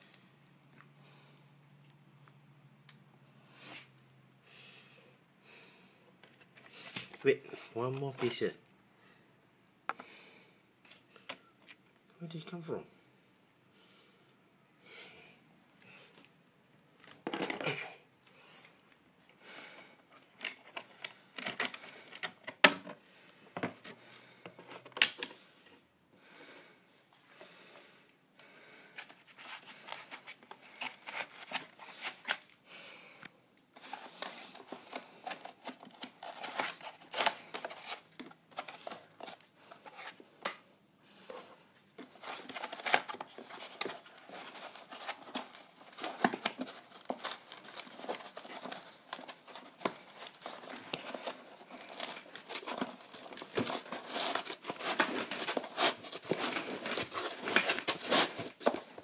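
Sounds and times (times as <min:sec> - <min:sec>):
plastic packaging crinkling: 0:33.8 - 0:40.1, 0:42.0 - 0:59.0.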